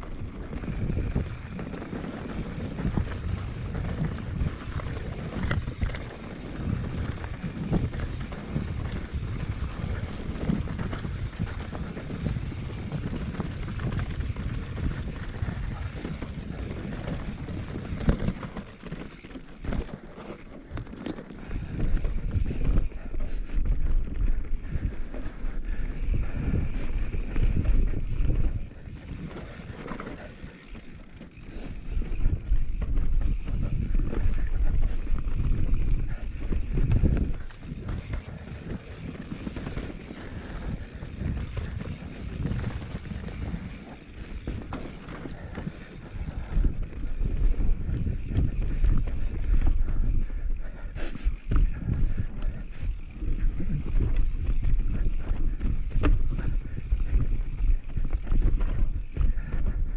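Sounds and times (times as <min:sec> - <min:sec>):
bike tyres rumbling on dirt: 0:00.0 - 0:59.9
wind buffeting microphone: 0:00.0 - 0:59.9
bike knocks and rattles: 0:25.7 - 0:50.2, 0:51.2 - 0:59.9.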